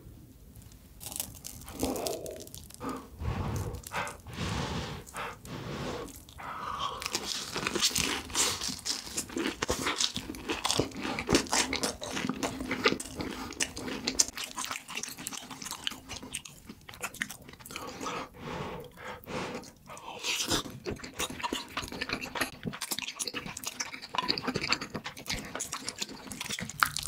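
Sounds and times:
crisp crunching: 0.6s - 4.4s, 6.0s - 16.6s
food being bitten and chewed: 0.6s - 27.0s.

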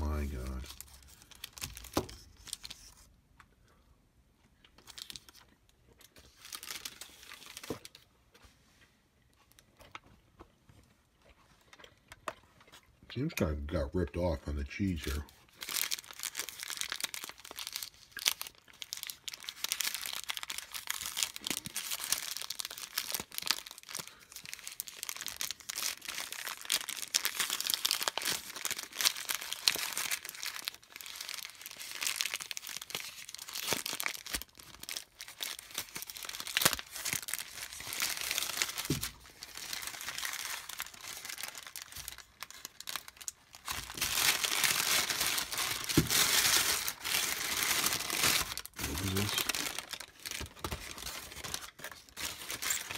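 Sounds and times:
paper crinkling: 14.8s - 52.9s.

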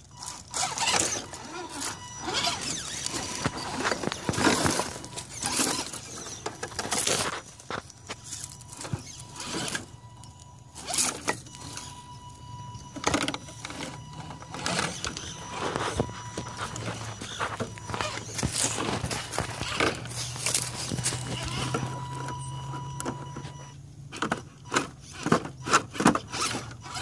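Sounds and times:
small electric motor whining: 0.0s - 27.0s
scrapes and crunches on rock: 0.2s - 9.9s, 13.7s - 22.3s.

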